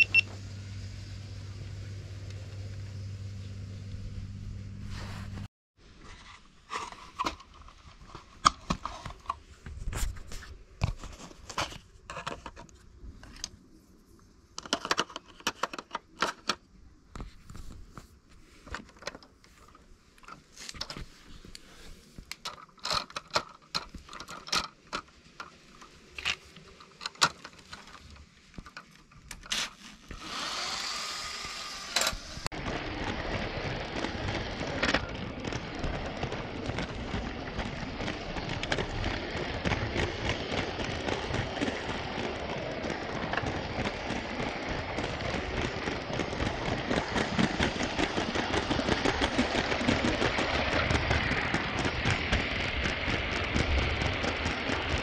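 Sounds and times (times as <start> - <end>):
toy train rattling on plastic track: 14.6 - 16.6, 22.4 - 55.0
sharp clicks and knocks: 22.2 - 30.2.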